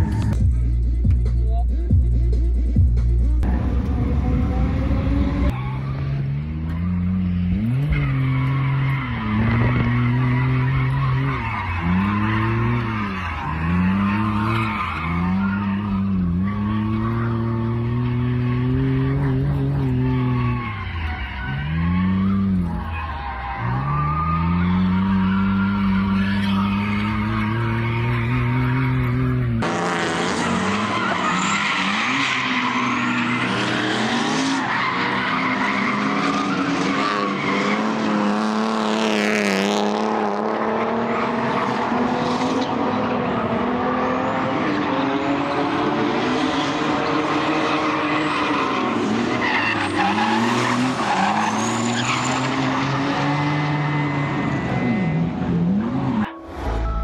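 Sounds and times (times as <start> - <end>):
car engine revving: 2.2 - 57.0
tyres squealing: 30.2 - 38.3, 47.1 - 55.2.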